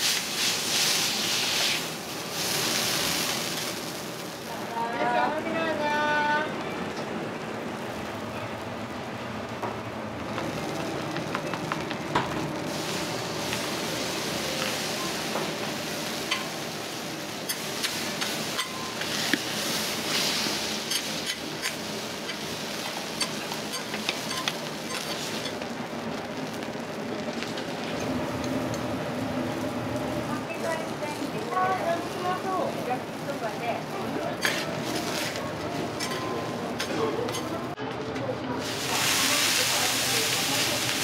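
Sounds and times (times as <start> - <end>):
food sizzling on a griddle: 0.0 - 6.5, 7.3 - 37.8, 38.6 - 41.0
metal spatulas scraping griddle: 34.4 - 37.5.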